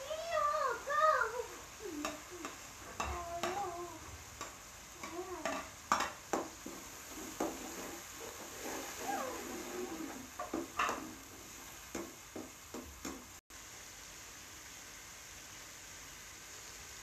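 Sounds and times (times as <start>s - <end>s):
faint sizzle: 0.0s - 17.0s
metal spoon scraping a pot: 6.6s - 11.1s.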